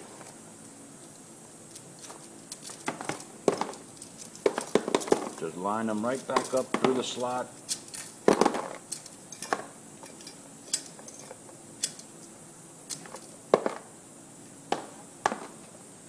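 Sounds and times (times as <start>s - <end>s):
metal rivets clicking: 1.7s - 5.4s, 6.1s - 12.3s.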